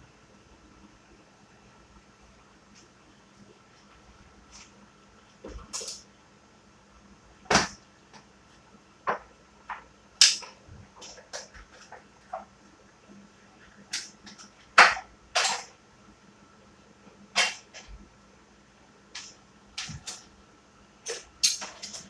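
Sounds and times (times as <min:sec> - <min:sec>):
utensils clicking on tabletop: 0:21.0 - 0:22.0.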